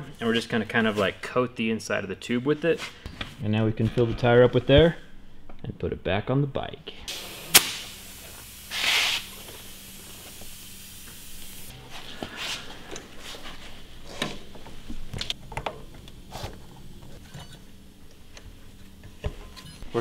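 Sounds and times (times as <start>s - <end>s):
compressed air hissing at tire valve: 7.1s - 11.7s.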